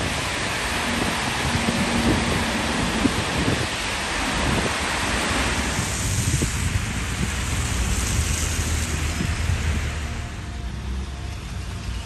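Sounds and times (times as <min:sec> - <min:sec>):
wind buffeting microphone: 0:00.0 - 0:10.0
tyres rushing on wet pavement: 0:00.0 - 0:12.0.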